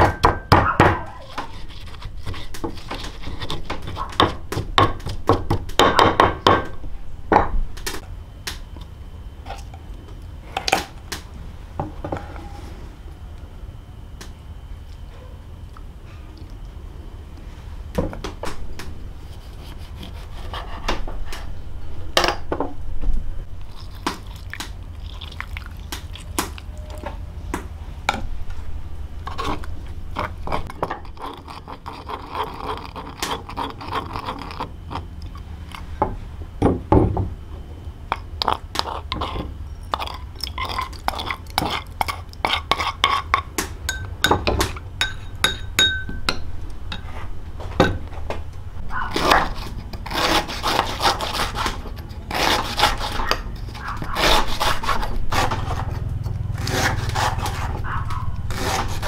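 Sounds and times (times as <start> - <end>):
liquid pouring: 24.3 - 25.8
dishes and utensils clinking: 43.9 - 47.1.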